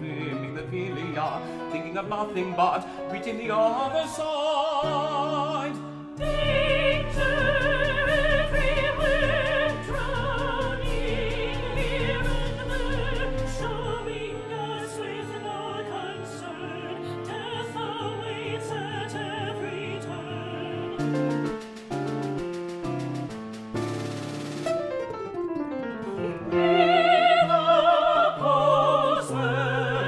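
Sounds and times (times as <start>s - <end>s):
operatic singing with vibrato: 0.0s - 21.7s, 26.4s - 30.0s
orchestra playing: 5.0s - 30.0s.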